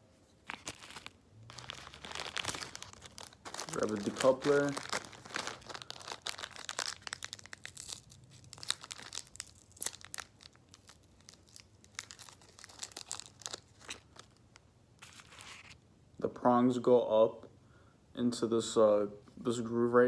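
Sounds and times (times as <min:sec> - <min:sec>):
crinkly plastic packaging rustling: 0:00.3 - 0:15.8.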